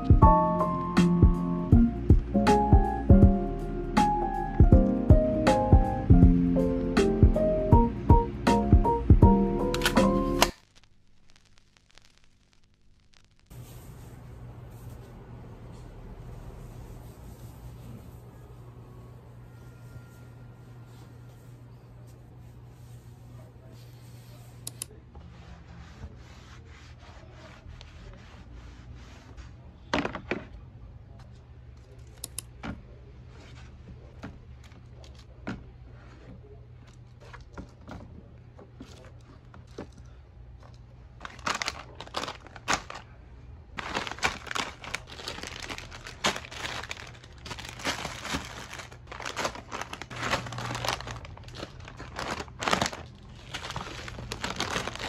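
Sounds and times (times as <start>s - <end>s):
plastic snack packets crinkling: 38.9s - 43.2s, 43.8s - 55.0s.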